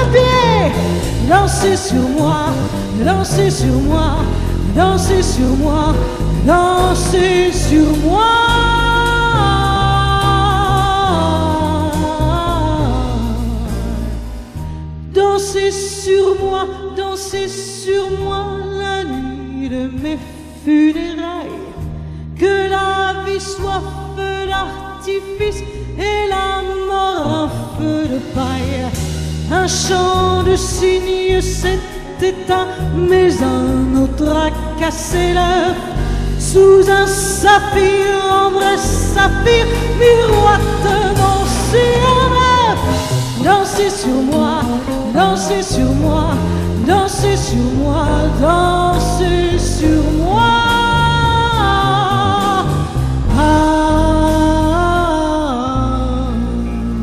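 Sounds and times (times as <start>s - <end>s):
woman singing: 0.0s - 14.2s, 15.1s - 57.0s
grand piano: 0.0s - 57.0s
upright double bass: 0.0s - 57.0s.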